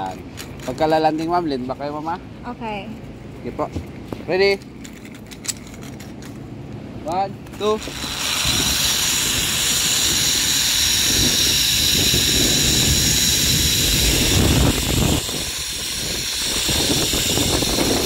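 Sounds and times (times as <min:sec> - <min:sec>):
high pulley whine: 0:07.4 - 0:18.0
zipline trolley hissing on cable: 0:07.6 - 0:18.0
wind rushing: 0:08.3 - 0:18.0.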